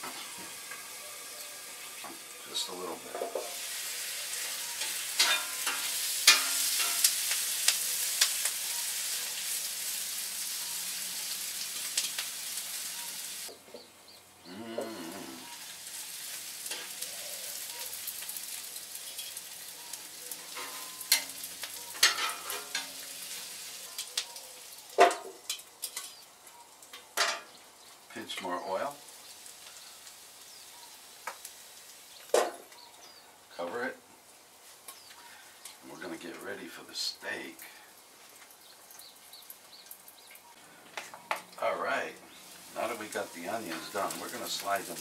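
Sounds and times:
onions sizzling on griddle: 0:00.0 - 0:45.0
metal cover clanking: 0:04.8 - 0:07.1, 0:21.9 - 0:23.0, 0:27.2 - 0:27.5
metal tongs scraping steel: 0:04.8 - 0:07.1.

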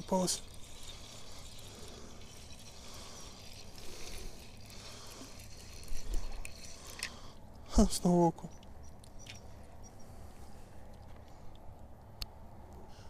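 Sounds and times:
fishing reel whirring: 0:00.0 - 0:08.2.

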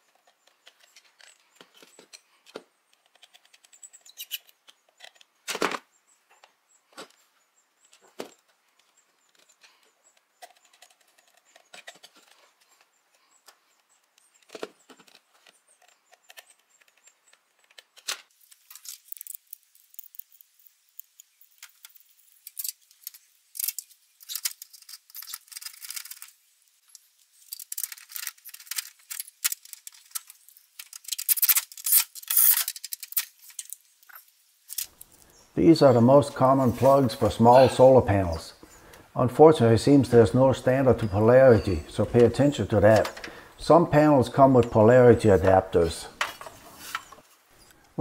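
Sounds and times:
wires and metal parts rattling: 0:00.0 - 0:05.8, 0:07.8 - 0:35.2.

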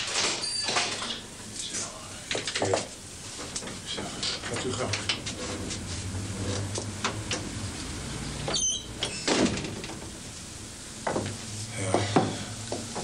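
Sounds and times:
door squeak: 0:00.2 - 0:01.2, 0:08.4 - 0:09.8.

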